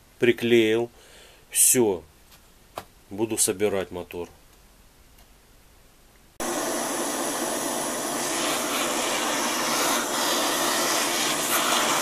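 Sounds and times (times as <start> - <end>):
gas torch hissing: 6.4 - 12.0.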